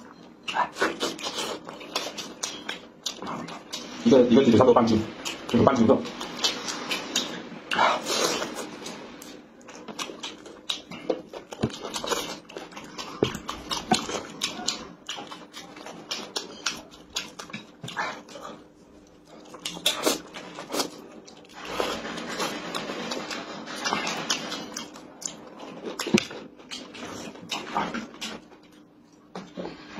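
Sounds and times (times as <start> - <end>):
wet chewing and lip-smacking: 0.0 - 4.0, 5.2 - 21.8.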